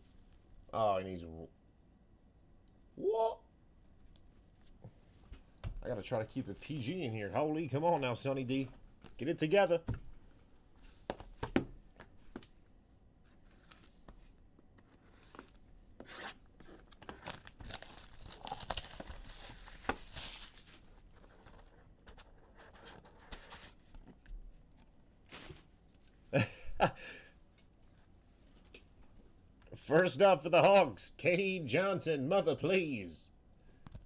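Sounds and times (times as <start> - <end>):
wrapper tearing and crinkling: 16.8 - 21.0.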